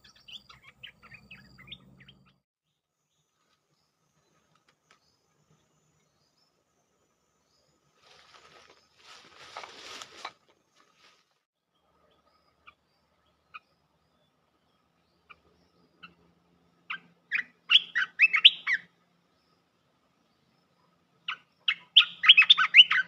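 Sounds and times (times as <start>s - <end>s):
bird chirping: 0.0s - 23.0s
rustling: 8.0s - 11.4s.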